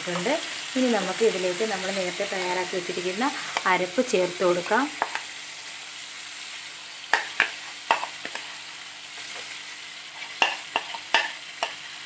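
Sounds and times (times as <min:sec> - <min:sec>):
vegetables sizzling in a pan: 0:00.0 - 0:12.0
spoon tapping against pan: 0:07.1 - 0:08.4, 0:10.4 - 0:11.8.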